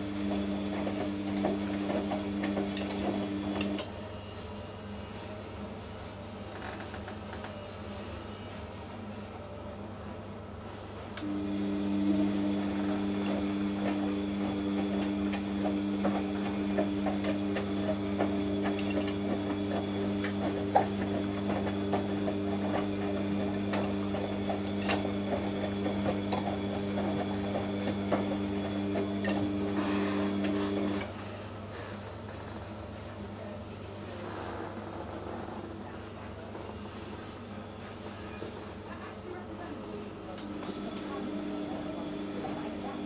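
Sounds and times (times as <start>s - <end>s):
washing machine motor humming: 0.0s - 3.9s, 11.2s - 31.2s, 39.8s - 43.0s.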